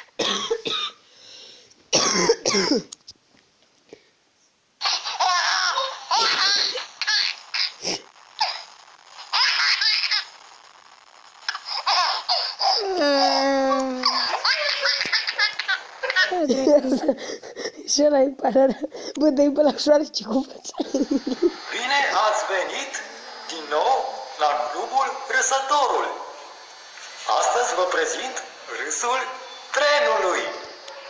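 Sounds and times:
baby laughing: 4.8s - 8.6s, 9.3s - 10.3s, 11.5s - 17.7s.

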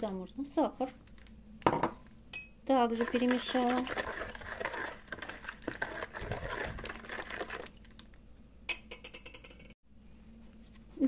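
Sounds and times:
spoon scraping ceramic bowl: 3.0s - 7.7s.

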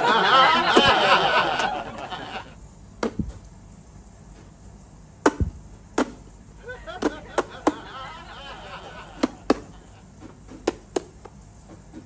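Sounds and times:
laughter-like chattering: 0.0s - 2.6s, 6.6s - 10.1s.

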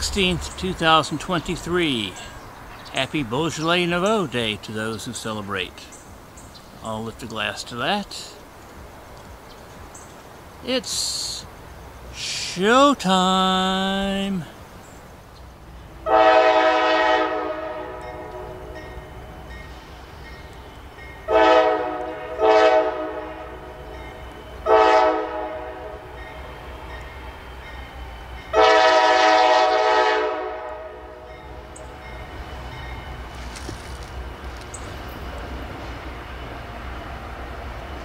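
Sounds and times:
locomotive air horn blasts: 16.0s - 18.6s, 21.3s - 23.7s, 24.6s - 26.0s, 28.5s - 31.3s.

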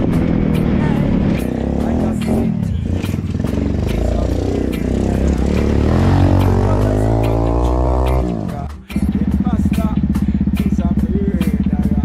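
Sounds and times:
motorbike engine revving past: 4.6s - 8.6s.

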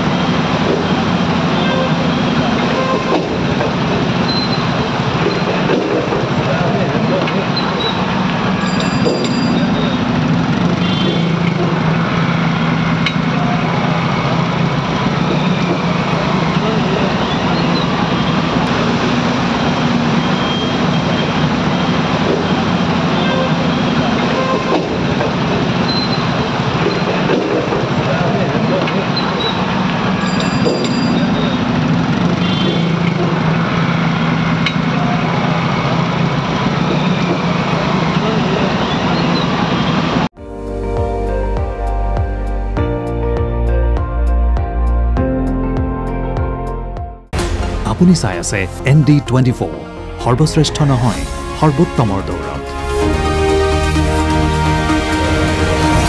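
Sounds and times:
vehicle engine humming: 0.0s - 30.2s
traffic noise: 0.0s - 40.4s, 47.7s - 56.0s.

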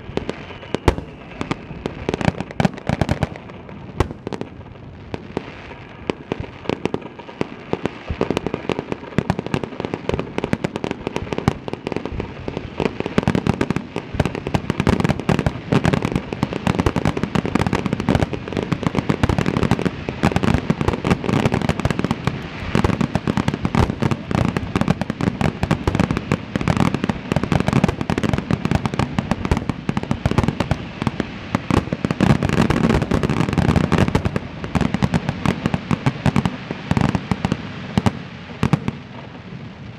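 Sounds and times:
fireworks bursting: 0.0s - 39.9s.

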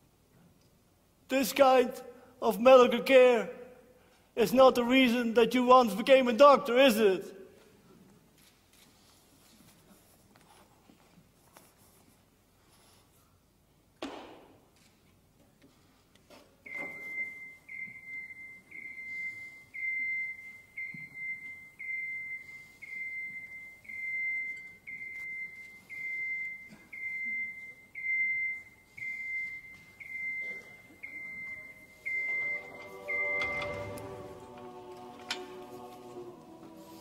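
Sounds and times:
heart monitor beeping: 16.6s - 37.0s.

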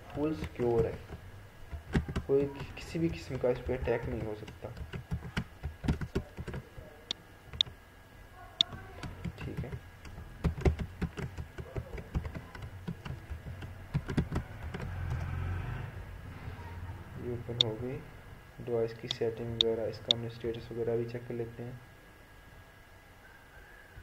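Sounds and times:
keyboard typing clicks: 0.4s - 6.6s, 8.6s - 15.3s.

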